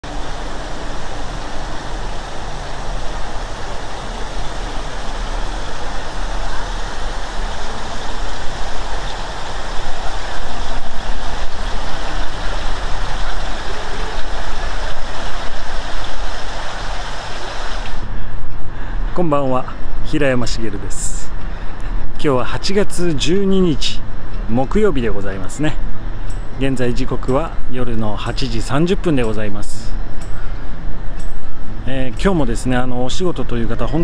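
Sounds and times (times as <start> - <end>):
running water rushing: 0.0 - 18.1
road traffic: 0.0 - 19.2, 23.6 - 27.8, 28.6 - 32.1.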